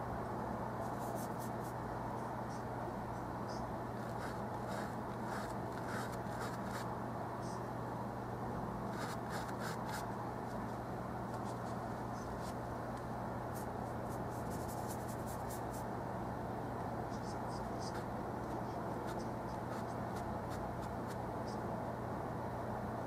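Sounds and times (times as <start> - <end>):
low hum and hiss: 0.0 - 23.0
brush scratching on canvas: 0.8 - 1.8, 4.0 - 6.9, 8.9 - 10.1, 13.5 - 15.8, 19.0 - 21.2.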